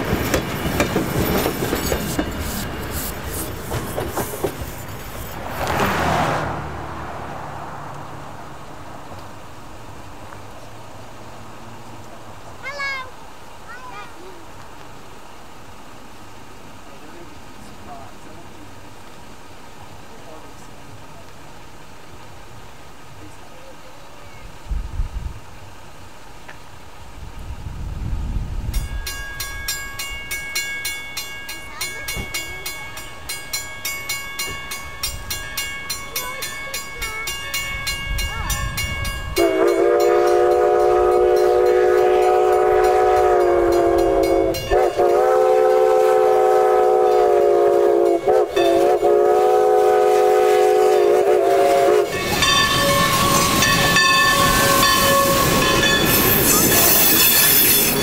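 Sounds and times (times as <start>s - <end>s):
steam locomotive chuffing: 0.0s - 6.0s, 28.8s - 58.0s
hissing steam: 0.0s - 6.1s
train wheels rumbling: 0.0s - 58.0s
crossing bell ringing: 28.7s - 45.9s, 48.0s - 49.1s, 52.0s - 58.0s
steam whistle blasts: 39.4s - 58.0s.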